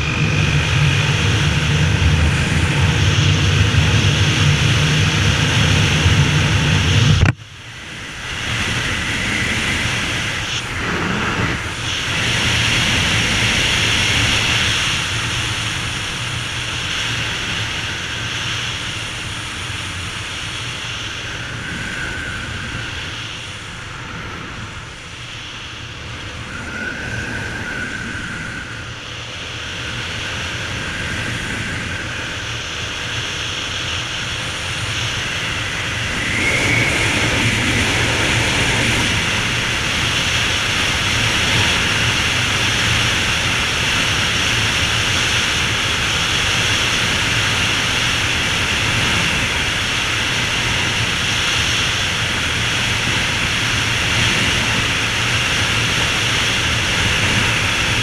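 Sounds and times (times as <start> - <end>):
motorcycle engine running: 0.0 - 7.4
wind noise: 0.0 - 58.0.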